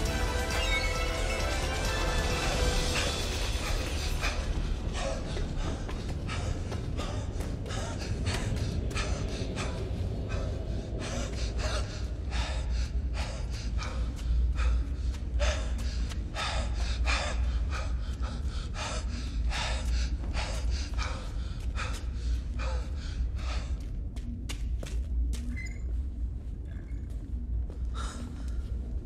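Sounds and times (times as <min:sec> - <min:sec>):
steady low rumble: 0:00.0 - 0:29.0
man panting: 0:02.4 - 0:24.3.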